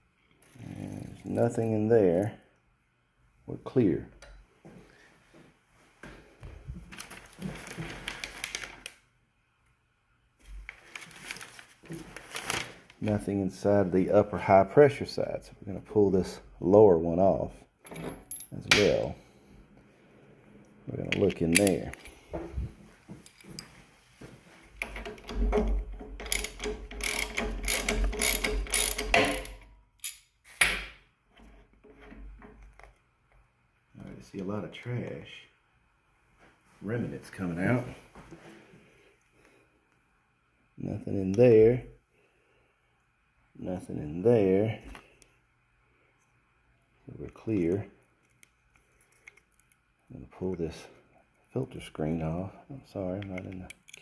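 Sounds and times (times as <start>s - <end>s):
small metal parts clicking: 24.8s - 30.3s, 53.3s - 54.0s.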